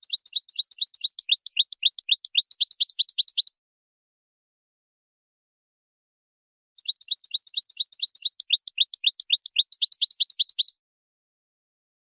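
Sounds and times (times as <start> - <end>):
goldfinch song: 0.0 - 3.6, 6.8 - 10.8.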